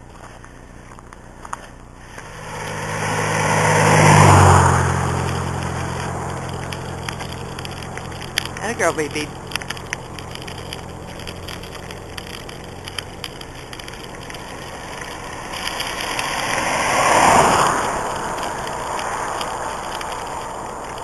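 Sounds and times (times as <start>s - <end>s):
scooter wheels rolling on asphalt: 0.0s - 21.0s
car driving past: 2.0s - 12.3s, 14.2s - 21.0s
light rattles: 4.1s - 16.6s.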